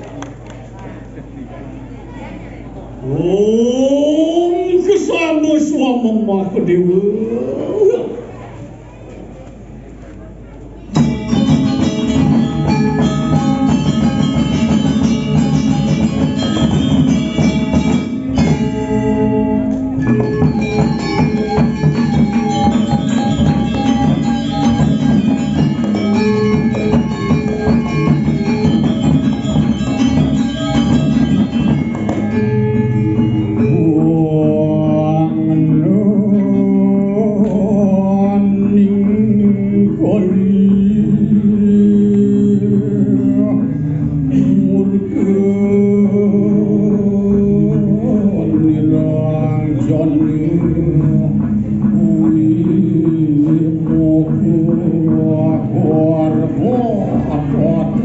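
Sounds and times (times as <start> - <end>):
gamelan metallophones ringing: 10.9 - 36.9
hand drums: 11.0 - 36.3, 38.4 - 58.0
person singing: 32.8 - 58.0.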